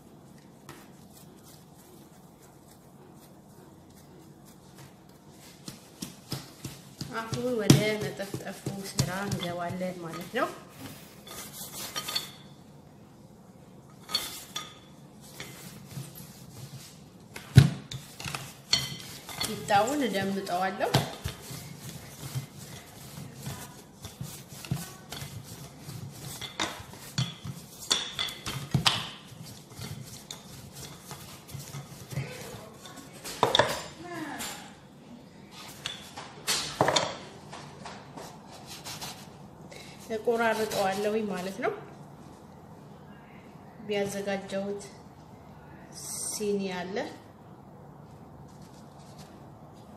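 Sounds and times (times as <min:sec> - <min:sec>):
kitchen utensils clattering: 0:17.9 - 0:34.8.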